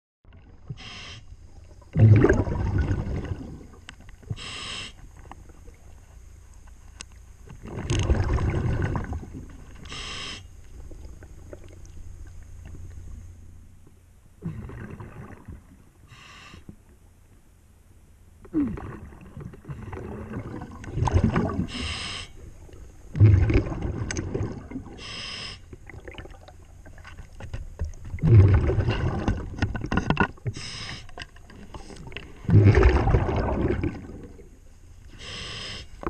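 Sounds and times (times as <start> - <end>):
diver inhaling through regulator: 0.7 - 1.3, 4.3 - 5.0, 9.8 - 10.6, 16.0 - 16.7, 21.6 - 22.4, 25.0 - 25.7, 30.5 - 33.0, 35.1 - 36.0
exhaled bubbles rushing: 1.8 - 3.8, 7.6 - 9.7, 14.4 - 15.8, 18.5 - 21.8, 22.5 - 25.0, 25.8 - 27.1, 28.0 - 30.0, 32.0 - 34.6.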